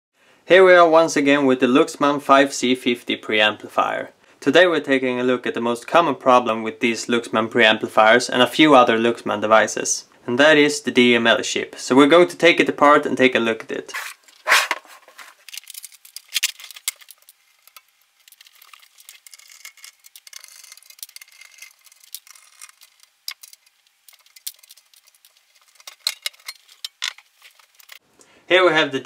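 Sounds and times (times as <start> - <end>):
small metallic clicks and rattles: 15.4 - 28.0.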